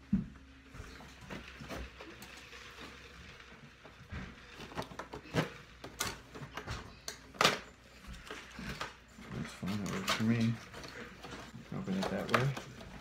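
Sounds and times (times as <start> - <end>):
packaging clicks and knocks: 10.0 - 12.8.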